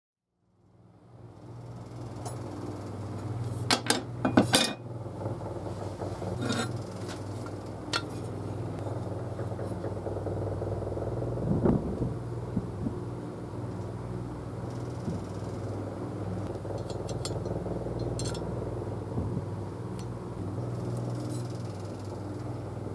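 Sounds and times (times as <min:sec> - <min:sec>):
steady low hum: 0:00.5 - 0:22.9
chisel scraping rusty metal: 0:06.4 - 0:07.2.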